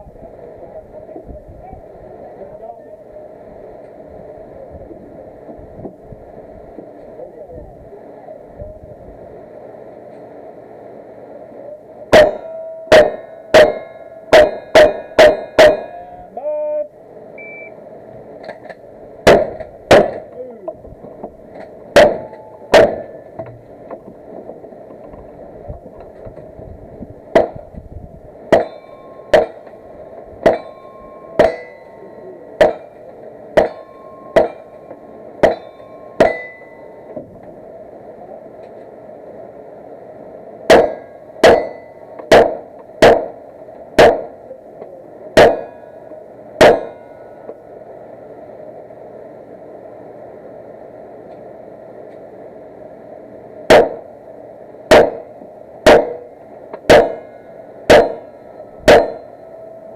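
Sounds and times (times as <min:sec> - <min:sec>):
gunshots: 0:12.1 - 0:15.9, 0:19.2 - 0:20.3, 0:22.0 - 0:23.2, 0:27.3 - 0:27.6, 0:28.5 - 0:29.6, 0:31.4 - 0:31.8, 0:32.6 - 0:33.0, 0:34.4 - 0:34.7, 0:35.4 - 0:36.4, 0:40.7 - 0:43.4, 0:44.0 - 0:44.4, 0:45.4 - 0:45.8, 0:46.6 - 0:47.0, 0:53.7 - 0:54.0, 0:54.9 - 0:56.2, 0:56.9 - 0:57.3, 0:57.9 - 0:58.2, 0:58.9 - 0:59.2
ring of struck steel targets: 0:12.1 - 0:16.2, 0:22.0 - 0:23.4, 0:28.5 - 0:29.8, 0:30.4 - 0:37.2, 0:40.7 - 0:43.4, 0:45.4 - 0:46.0, 0:46.6 - 0:47.5, 0:54.9 - 0:56.3, 0:56.9 - 0:59.9.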